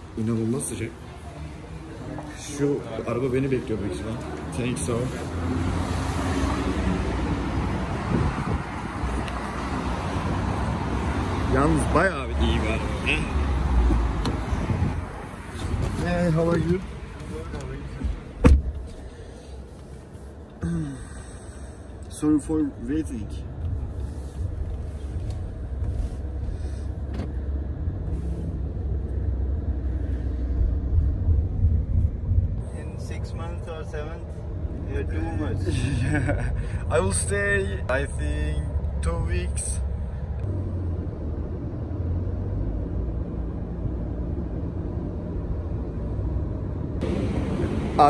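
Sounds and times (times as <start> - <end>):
car running with low rumble: 0.0 - 48.0.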